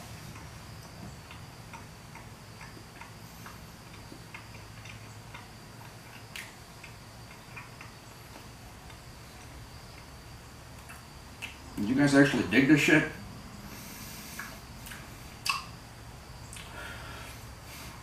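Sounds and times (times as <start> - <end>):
steady low hum: 0.0 - 18.0
chewing toast: 0.3 - 11.6
soft mouth clicks: 14.3 - 15.7, 16.5 - 16.8.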